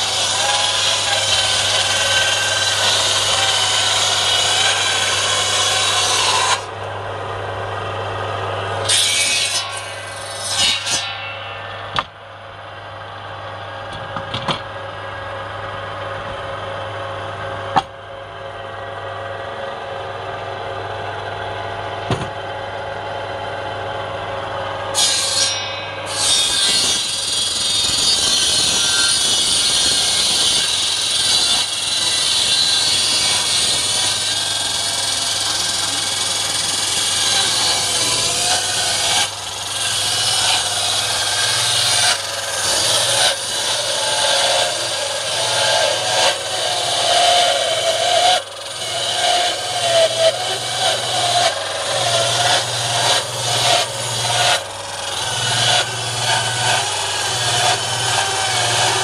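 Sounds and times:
saw blade cutting log: 0.0 - 6.9, 7.7 - 12.2, 24.8 - 59.0
circular saw humming: 0.0 - 59.0
sharp knocks: 11.9 - 12.2, 22.0 - 22.4.

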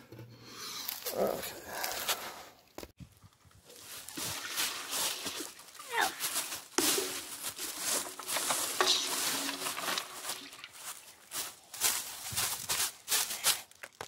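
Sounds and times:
feet shuffling through dry leaves: 3.6 - 13.8
metal tank knocking and scraping: 6.8 - 10.9.

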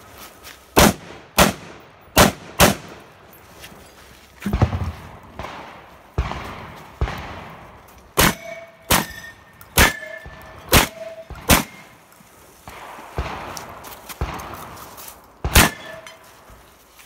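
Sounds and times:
shotgun shots: 0.8 - 3.1, 4.5 - 9.2, 9.8 - 12.0, 12.7 - 14.8, 15.4 - 16.1
steel targets ringing: 8.2 - 12.0, 15.6 - 16.3.

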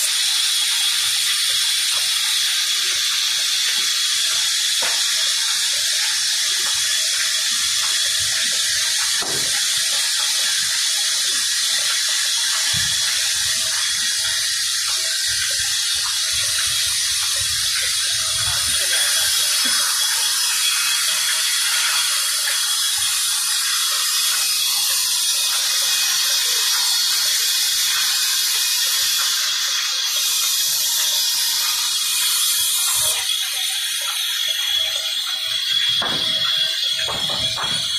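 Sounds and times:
band saw cutting wood: 12.7 - 37.9.

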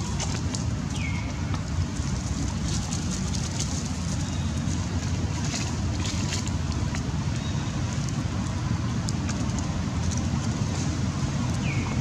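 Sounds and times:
dry leaves crackling: 2.2 - 7.6.

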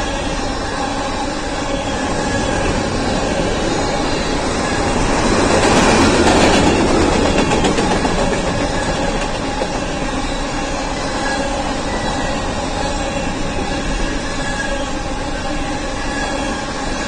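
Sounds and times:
freight train rolling past: 0.0 - 17.0.

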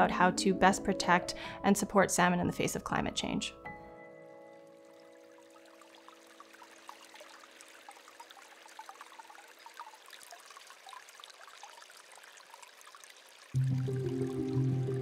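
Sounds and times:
water trickling and bubbling: 4.6 - 15.0
sustained music chord: 13.6 - 15.0.

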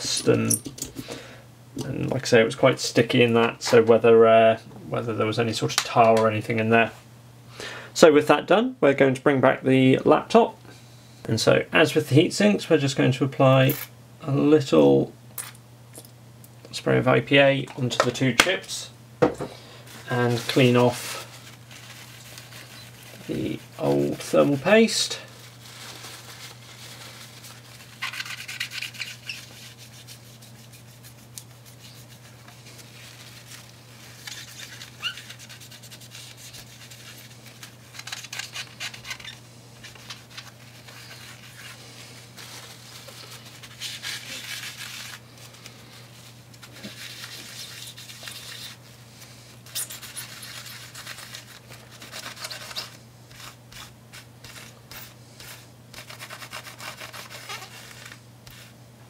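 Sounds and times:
cloth rubbing on chips: 19.7 - 58.8.

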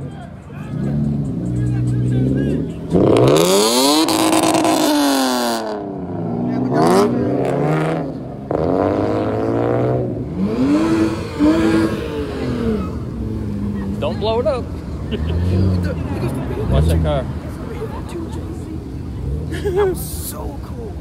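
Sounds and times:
car engine revving hard: 2.6 - 13.8.

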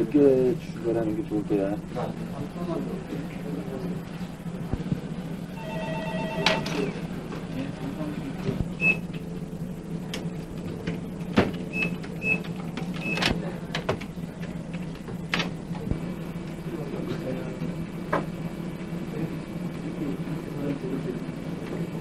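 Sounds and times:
high beeps: 5.6 - 7.0.

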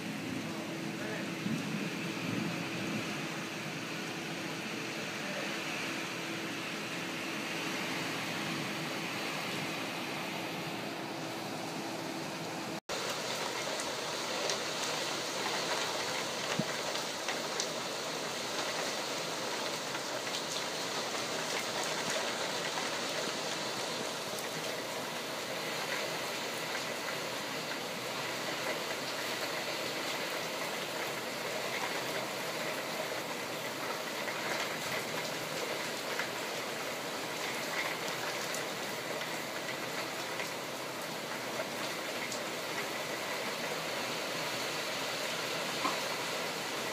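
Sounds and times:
heavy rain falling: 0.0 - 46.9
raindrops ticking close by: 12.9 - 46.9.

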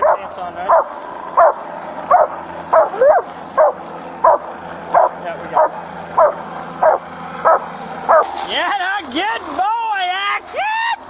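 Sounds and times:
dog barking: 0.0 - 8.3.

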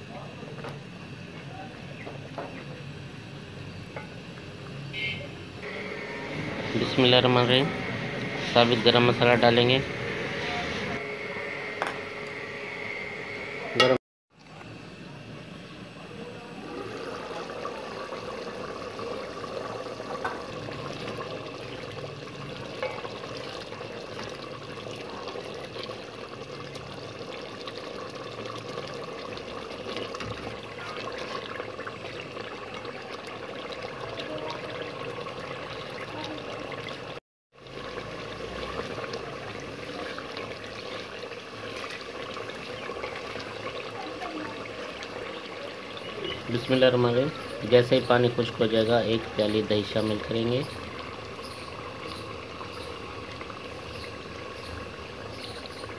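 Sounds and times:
curry simmering and bubbling: 15.3 - 55.9.

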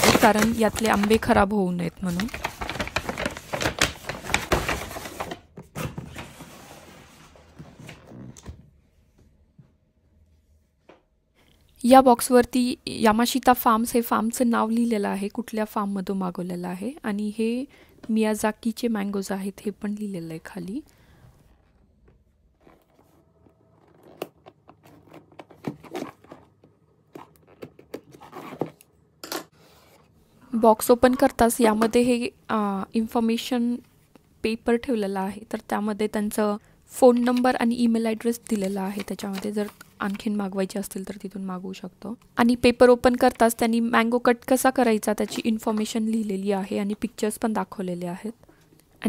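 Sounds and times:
delivery bag crinkling and rustling: 0.0 - 5.5.

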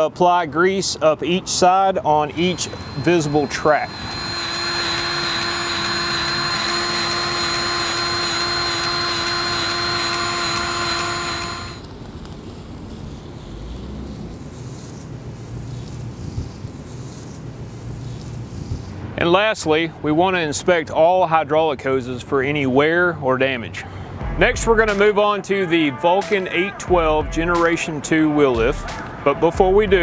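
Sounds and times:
grease gun motor whining: 2.3 - 11.9.

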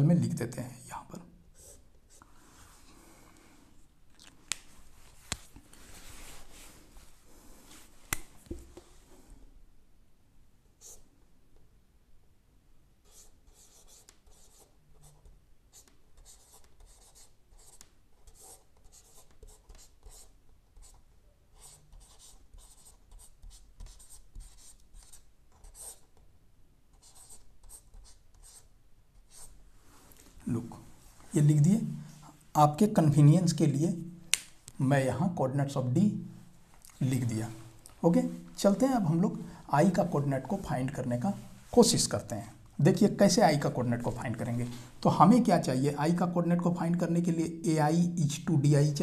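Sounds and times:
marker scratching on whiteboard: 1.5 - 2.3, 10.8 - 11.1, 13.0 - 26.2, 26.9 - 29.6.

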